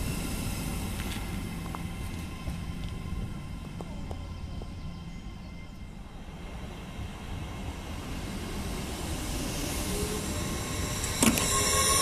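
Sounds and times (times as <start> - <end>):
train rolling past: 0.0 - 12.0.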